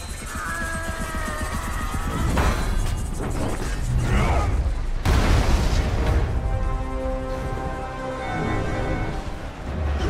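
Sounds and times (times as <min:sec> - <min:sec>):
sustained orchestral chords: 0:06.2 - 0:10.0.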